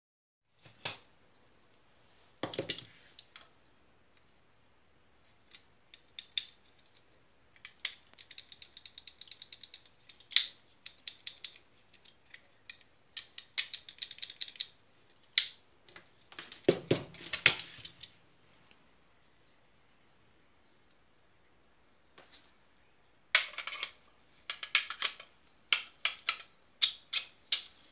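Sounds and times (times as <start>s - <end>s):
gun parts clicking and knocking: 5.4s - 18.1s, 23.3s - 27.9s.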